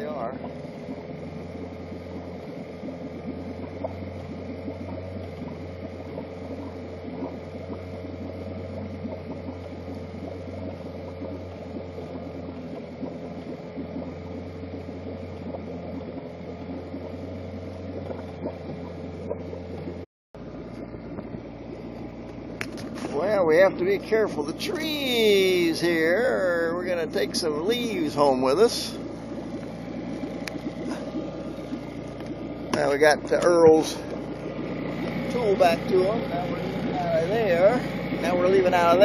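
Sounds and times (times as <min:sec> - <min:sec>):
outboard motor running: 0:00.0 - 0:39.0.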